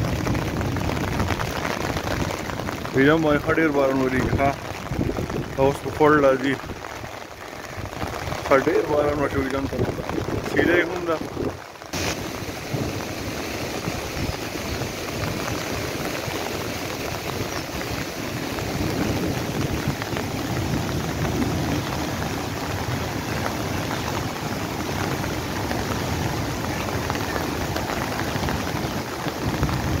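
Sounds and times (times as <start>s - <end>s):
heavy rain falling: 0.0s - 30.0s
water rushing over rocks: 0.0s - 30.0s.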